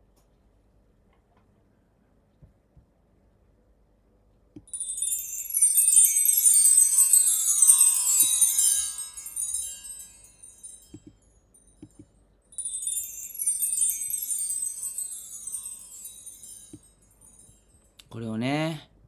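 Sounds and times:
metal chimes ringing: 4.7s - 18.0s.

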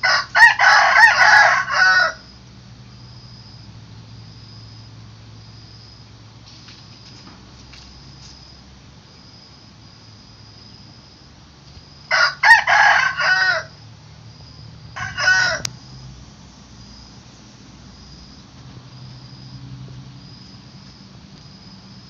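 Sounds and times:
rooster crowing: 0.0s - 2.4s, 12.1s - 13.8s, 14.8s - 16.0s.

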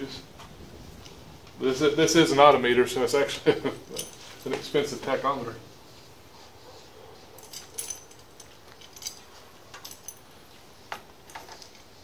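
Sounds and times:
light metallic clicks and clinks: 3.8s - 5.2s, 7.3s - 11.9s.

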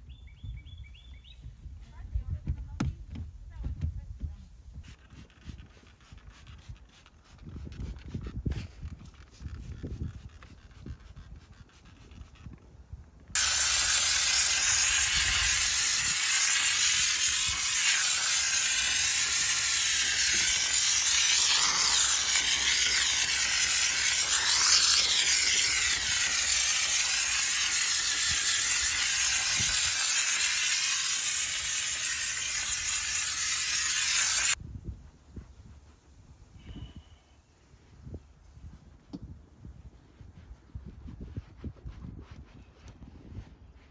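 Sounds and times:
pressurised cleaning jet hissing: 13.4s - 34.6s.

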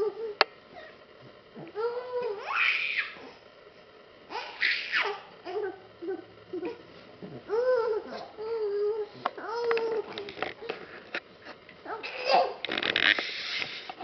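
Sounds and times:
baby squealing: 1.9s - 3.3s, 4.3s - 5.7s.

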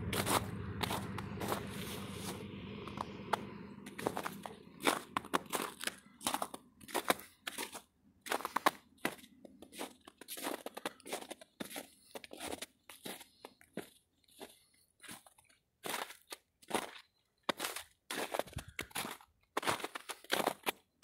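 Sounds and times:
footsteps crunching in snow: 0.0s - 20.8s.

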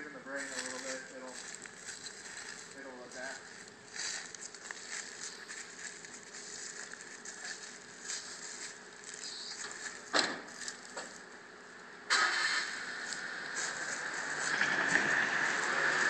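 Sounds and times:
footsteps on dry leaves: 0.2s - 11.6s, 12.3s - 16.0s.

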